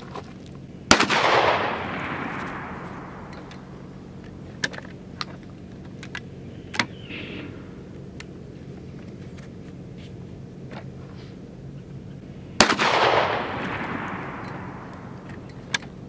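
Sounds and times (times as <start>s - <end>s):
shotgun shot echoing: 0.9s - 3.9s, 12.6s - 15.2s
sharp clicks: 2.4s - 7.0s.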